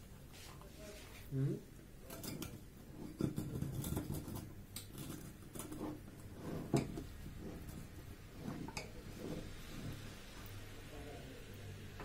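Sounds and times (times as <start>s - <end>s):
metal utensils scraping glass dish: 2.1s - 10.1s.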